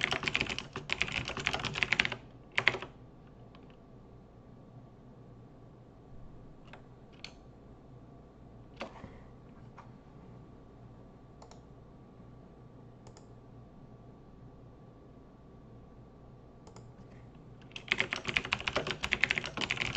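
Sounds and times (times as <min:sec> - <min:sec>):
faint steady hum: 0:00.0 - 0:19.9
keyboard and mouse clicks: 0:06.6 - 0:07.4, 0:11.4 - 0:11.7, 0:13.0 - 0:13.3, 0:16.6 - 0:17.0.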